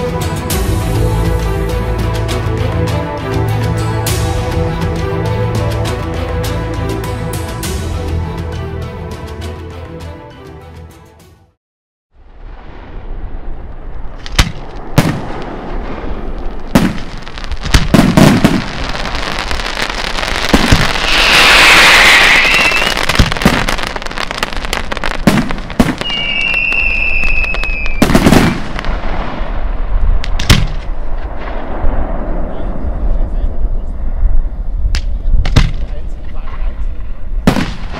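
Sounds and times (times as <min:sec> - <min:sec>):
firework shells bursting: 0:20.5 - 0:23.9
loud hissing: 0:20.9 - 0:23.0
high whistle: 0:21.1 - 0:23.1, 0:26.0 - 0:28.1.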